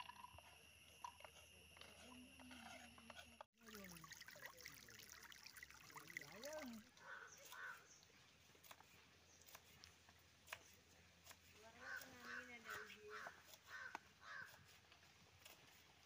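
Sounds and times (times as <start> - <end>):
crow cawing: 7.0 - 7.9, 11.8 - 14.6.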